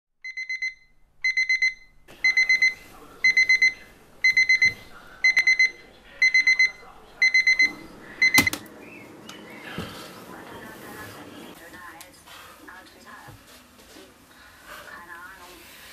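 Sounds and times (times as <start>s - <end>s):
alarm clock beeping: 0.2s - 8.6s.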